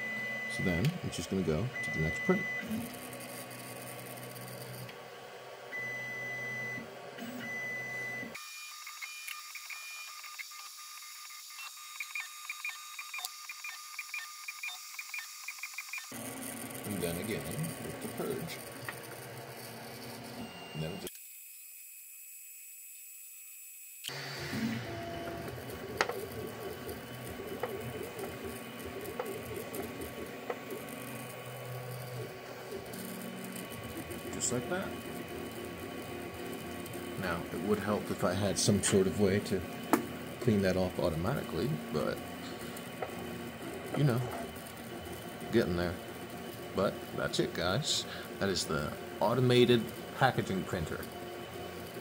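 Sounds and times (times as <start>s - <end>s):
fans humming: 0.0s - 8.4s, 16.0s - 21.1s, 24.1s - 52.0s
stepper motors whining: 5.8s - 21.8s, 23.9s - 52.0s.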